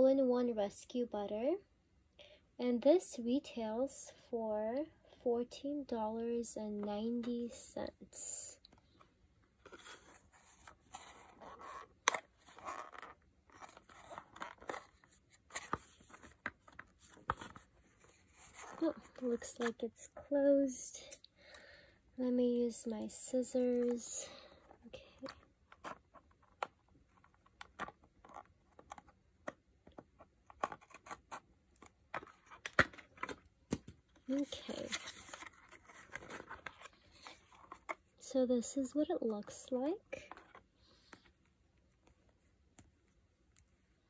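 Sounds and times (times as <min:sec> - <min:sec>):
cardboard box being handled: 0:09.6 - 0:19.7, 0:34.3 - 0:38.0.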